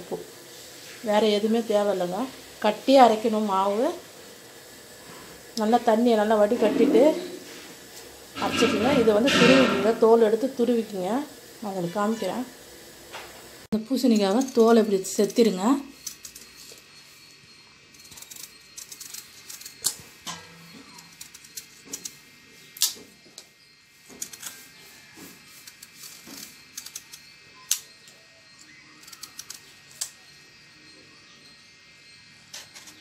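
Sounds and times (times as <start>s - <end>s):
knife scraping gourd skin: 15.3s - 17.3s, 17.9s - 23.0s, 24.0s - 28.0s, 28.6s - 30.2s.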